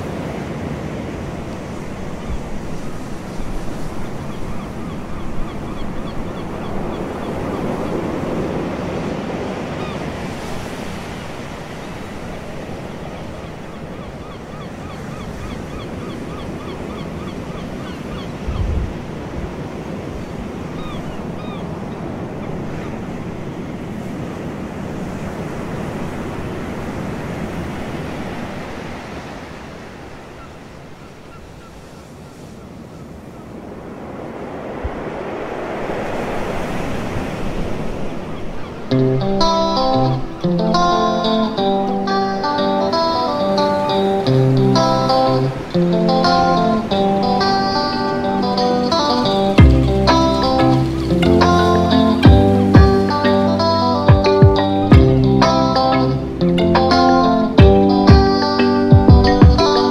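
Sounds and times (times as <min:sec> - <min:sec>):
ocean surf washing onto beach: 0:00.0 - 0:59.9
wind buffeting microphone: 0:17.8 - 0:27.2.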